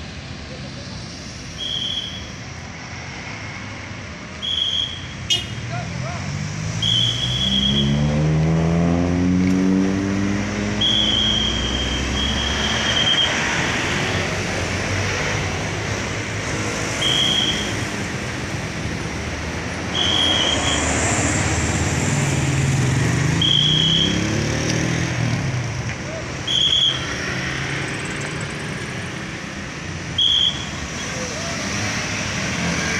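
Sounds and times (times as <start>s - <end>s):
road traffic: 0.0s - 32.9s
whistle blasts: 1.5s - 2.4s, 4.3s - 5.6s, 6.8s - 8.0s, 10.8s - 13.4s, 17.0s - 17.8s, 19.9s - 20.9s, 23.3s - 24.3s, 26.4s - 27.2s, 30.1s - 30.8s
car engine speeding up: 6.0s - 17.0s.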